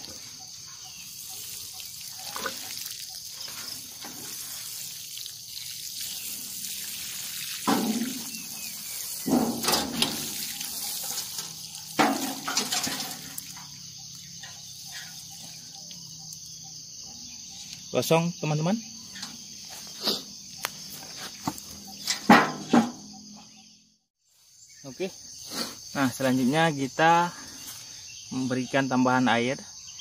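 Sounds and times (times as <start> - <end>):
water sprinkling onto soil: 0.0 - 16.0
watering can knocks: 7.5 - 13.8, 21.3 - 23.4.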